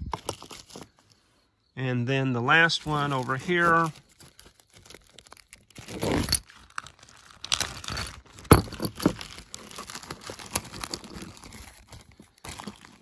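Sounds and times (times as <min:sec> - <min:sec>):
plastic bag crinkling: 0:02.8 - 0:13.0.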